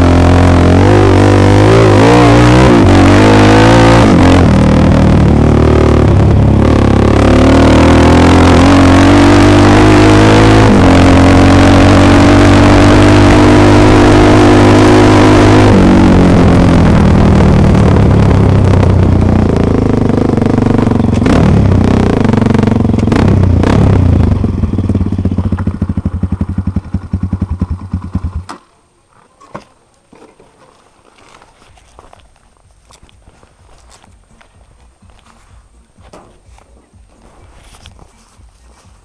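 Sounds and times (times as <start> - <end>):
dirt bike engine idling: 16.0 - 28.5
clicks and crunches on gravel: 29.1 - 38.3.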